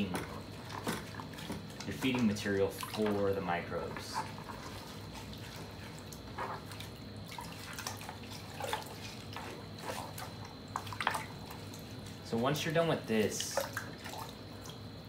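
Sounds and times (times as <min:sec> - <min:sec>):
water splashing in bucket: 0:00.0 - 0:15.0.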